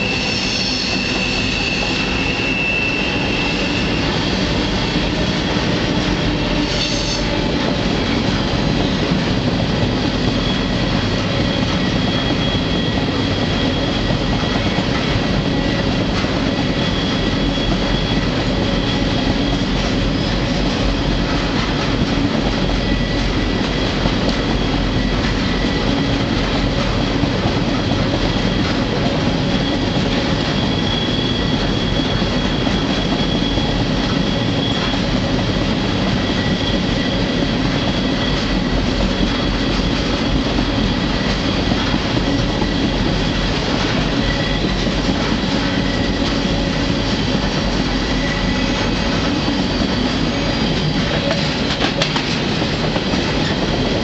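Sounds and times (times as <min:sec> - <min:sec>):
high-pitched wheel squeal: 0:00.0 - 0:05.3, 0:06.3 - 0:07.4, 0:09.9 - 0:14.4, 0:16.5 - 0:21.1, 0:28.0 - 0:51.7
train wheels rumbling on rail: 0:00.0 - 0:54.0.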